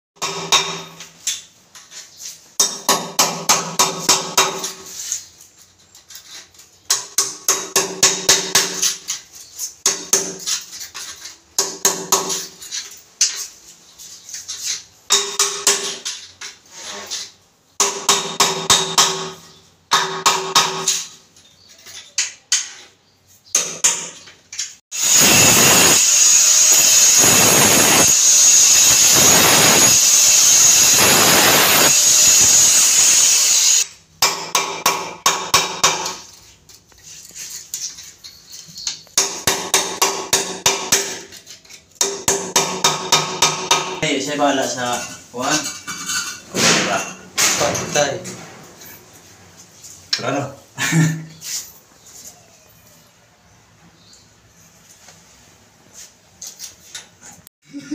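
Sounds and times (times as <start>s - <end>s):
angle grinder cutting: 24.9s - 33.9s.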